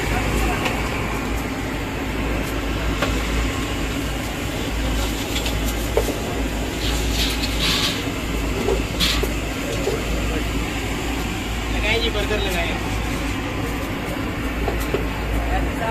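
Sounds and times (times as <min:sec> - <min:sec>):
machinery rumble and hum: 0:00.0 - 0:15.9.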